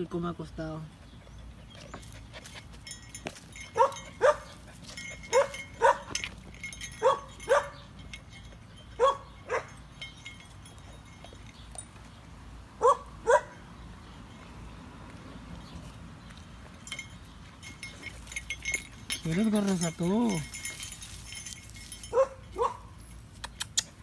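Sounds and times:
dog barking: 3.8 - 4.5, 5.3 - 6.1, 7.0 - 7.8, 9.0 - 9.7, 12.8 - 13.6, 22.1 - 22.9.

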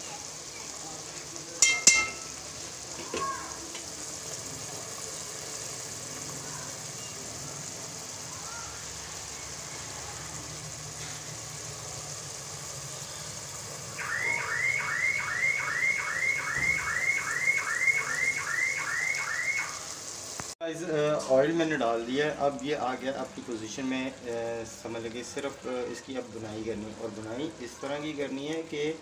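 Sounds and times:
curry simmering and sizzling: 0.0 - 29.0
warbling electronic alarm: 14.0 - 19.9.

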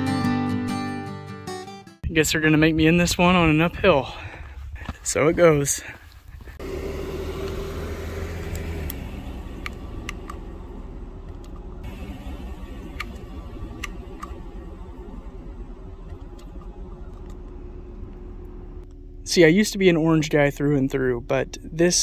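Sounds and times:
car engine humming: 6.4 - 22.0.

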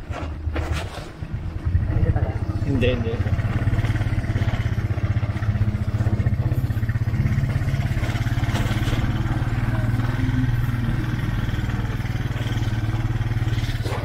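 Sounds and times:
small motorcycle engine putter: 3.7 - 14.0.

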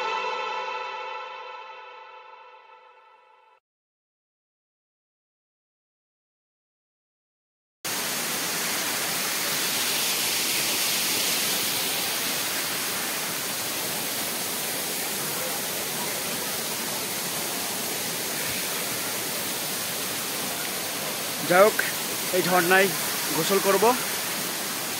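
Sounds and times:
waterfall rushing over rocks: 7.9 - 24.9.

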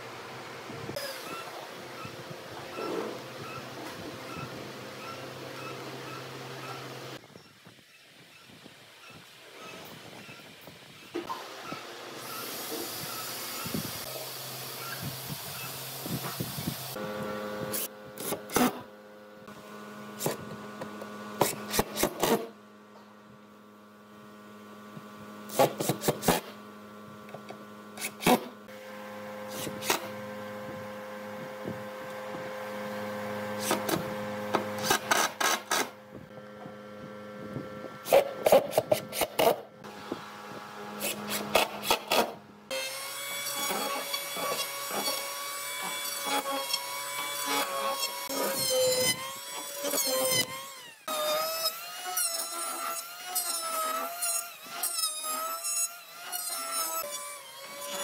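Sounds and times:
electric hand planer running: 28.0 - 58.0
impact driver driving screws: 33.6 - 35.9.

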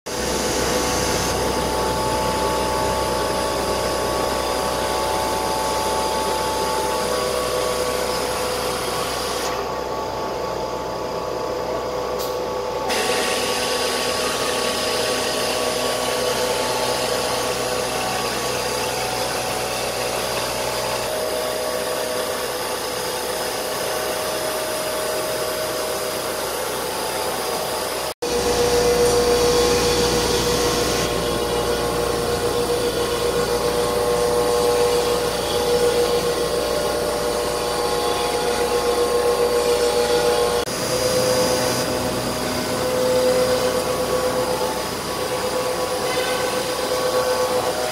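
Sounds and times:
router spindle whine: 0.1 - 47.9
wood cutting hiss: 12.2 - 47.9.

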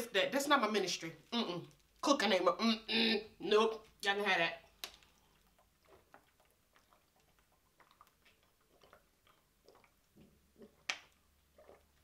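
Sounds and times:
soft gulping swallows: 5.0 - 12.0.

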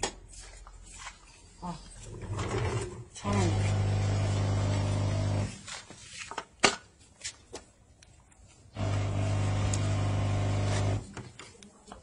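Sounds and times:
steam machine electric buzz: 3.5 - 5.5, 8.8 - 11.0.

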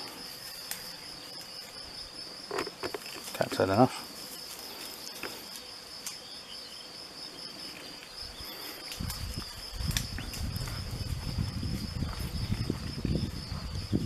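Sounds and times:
crickets chirring: 0.0 - 14.0
footsteps through vegetation: 7.9 - 14.0.

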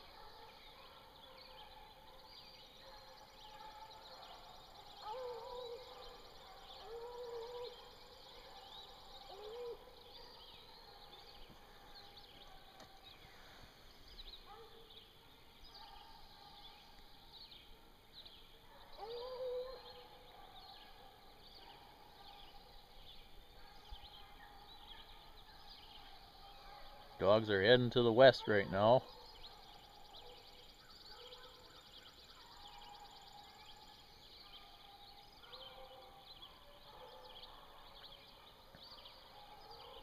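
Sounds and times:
distant hounds baying: 0.0 - 17.6, 18.2 - 40.0
small birds chirping: 0.0 - 40.0.

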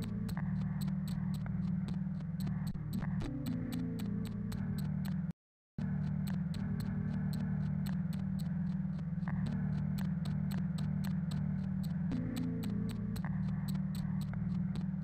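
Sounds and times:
fast ticking: 6.0 - 15.0.

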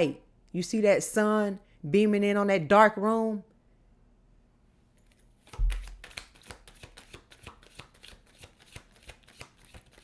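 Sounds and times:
cards being shuffled: 5.0 - 10.0.

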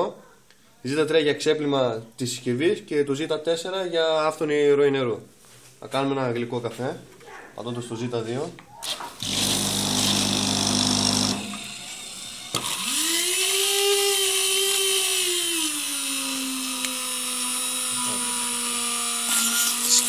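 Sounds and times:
electric mixer motor whining: 9.2 - 20.0.

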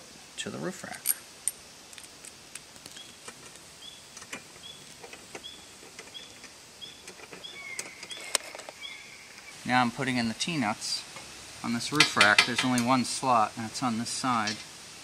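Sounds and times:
bird calling: 2.9 - 9.6.

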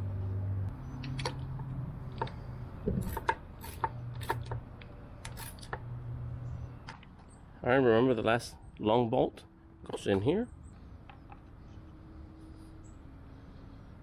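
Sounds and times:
ratchet wrench clicking: 3.0 - 4.6.

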